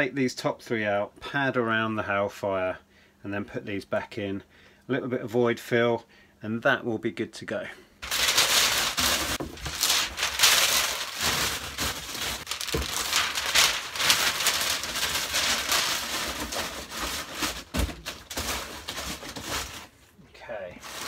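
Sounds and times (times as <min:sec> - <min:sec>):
packing paper scrunching: 0:08.0 - 0:20.0, 0:20.8 - 0:21.0.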